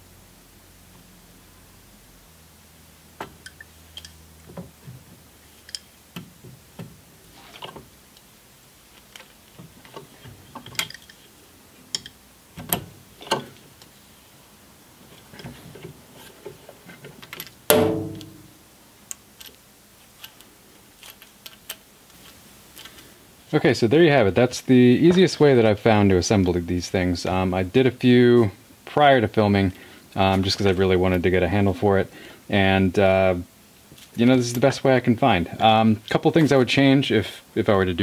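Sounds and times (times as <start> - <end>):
small metal clicks and scrapes: 5.5 - 5.9, 19.4 - 23.0
loud ringing metal clank: 17.7 - 18.6.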